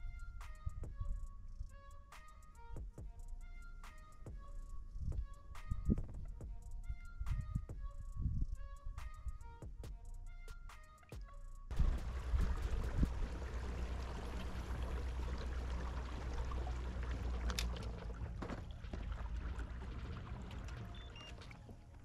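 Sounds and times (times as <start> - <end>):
low rumble: 11.7 - 21.3
water lapping against hull: 11.7 - 22.0.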